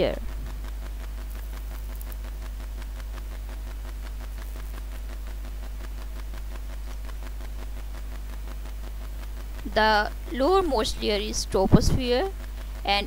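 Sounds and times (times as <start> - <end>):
faint hiss: 0.0 - 13.0
low electrical hum: 0.0 - 13.0
faint steady tones: 8.9 - 13.0.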